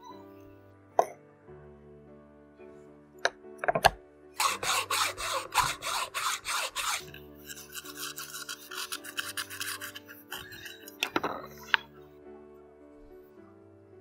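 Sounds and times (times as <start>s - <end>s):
hand saw rasping: 4.4s - 10.9s.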